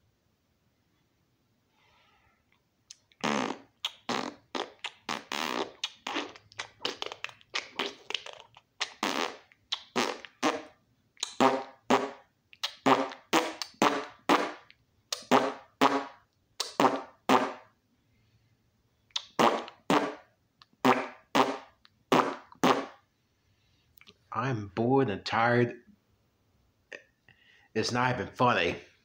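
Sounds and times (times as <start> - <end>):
man making mouth noises: 2.9 - 17.7, 19.1 - 23.0, 26.9 - 27.2.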